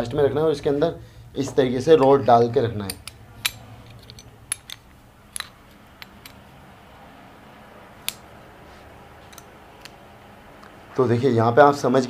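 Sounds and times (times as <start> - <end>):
metal gear parts clinking: 2.9 - 6.5.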